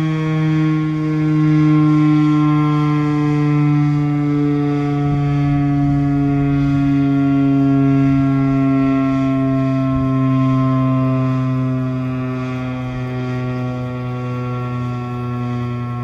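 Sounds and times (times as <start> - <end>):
warning siren alert tone: 0.0 - 16.0.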